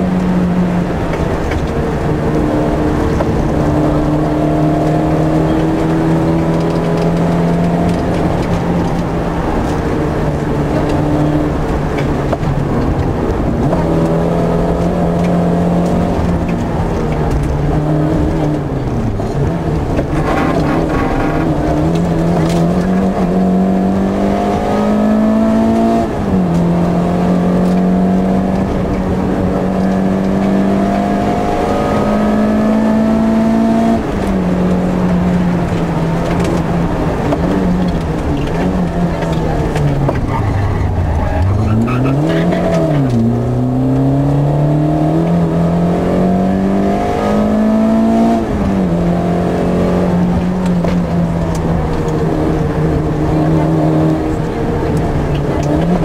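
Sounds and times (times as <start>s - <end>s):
rally car engine revving: 0.0s - 56.0s
road noise: 0.0s - 56.0s.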